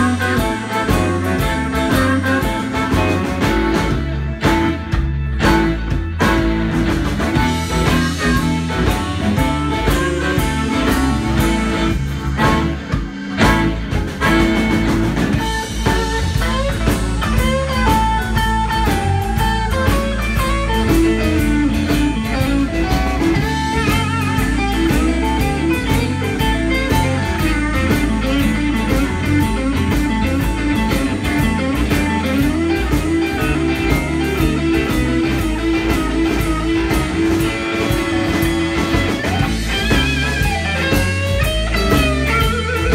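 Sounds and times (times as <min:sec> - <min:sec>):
drum kit steady beat: 0:00.0 - 0:42.9
electric guitars: 0:00.0 - 0:42.9
harmonica: 0:00.0 - 0:42.9
keyboard: 0:00.0 - 0:42.9.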